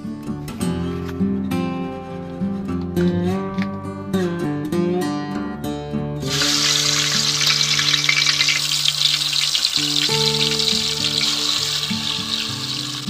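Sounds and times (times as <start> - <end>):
meat sizzling in hot oil: 6.2 - 13.0.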